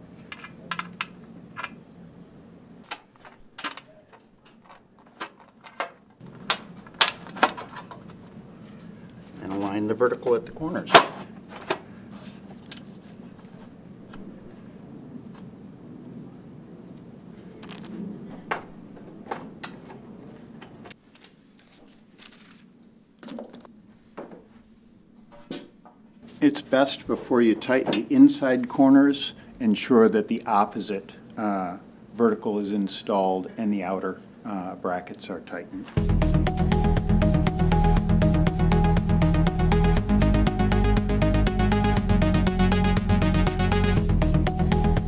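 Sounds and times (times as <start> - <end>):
metal parts clicking and clinking: 0.2 - 1.8, 2.9 - 8.2.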